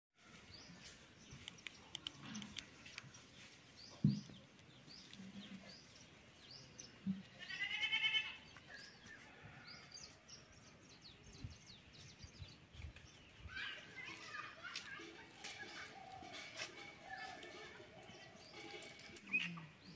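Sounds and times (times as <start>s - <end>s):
goat bleating: 7.3s - 8.4s
bird chirps: 15.5s - 19.9s.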